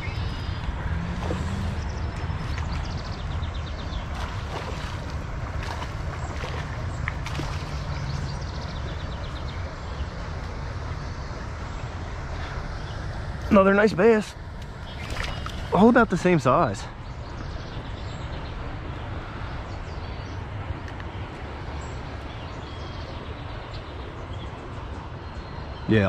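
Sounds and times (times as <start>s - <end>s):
wind rumble on microphone: 0.0s - 13.5s
water splashes: 0.0s - 25.2s.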